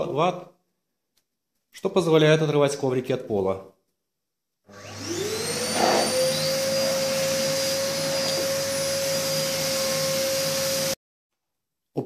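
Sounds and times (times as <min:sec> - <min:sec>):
vacuum cleaner motor whine: 0:04.7 - 0:11.0.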